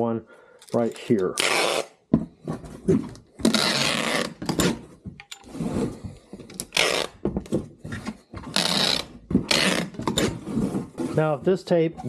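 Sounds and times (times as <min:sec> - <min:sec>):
packing tape ripping: 0:01.3 - 0:02.0, 0:03.4 - 0:04.5, 0:06.6 - 0:07.2, 0:08.5 - 0:10.3
tape dispenser knocking on box: 0:08.4 - 0:10.9.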